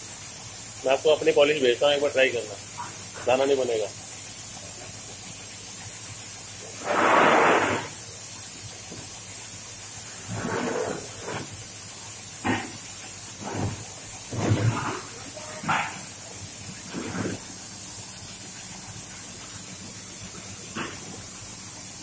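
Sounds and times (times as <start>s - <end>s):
spray gun hissing: 0.0s - 22.0s
rush of air: 6.8s - 8.0s.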